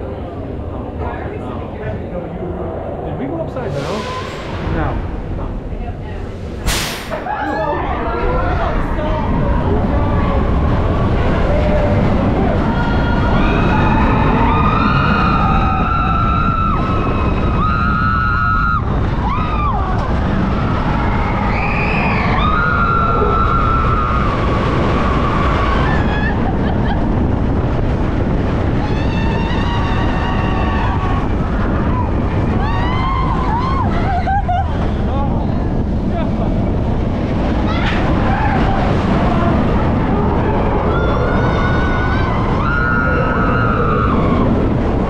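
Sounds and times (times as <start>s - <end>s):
roller coaster rushing on track: 0.0s - 45.0s
riders screaming: 11.2s - 26.8s, 28.6s - 35.0s, 37.6s - 45.0s.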